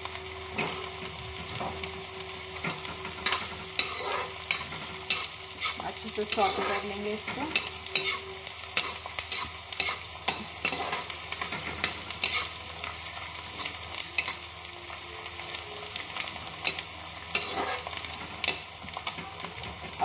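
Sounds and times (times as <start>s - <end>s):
onions sizzling in hot oil: 0.0s - 20.0s
metal ladle scraping a pan: 2.6s - 12.6s, 16.6s - 19.4s.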